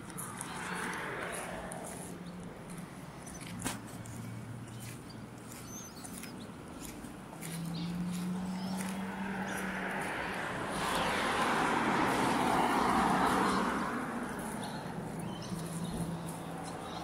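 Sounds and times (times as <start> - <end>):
car passing by: 0.0 - 2.9, 7.5 - 17.0.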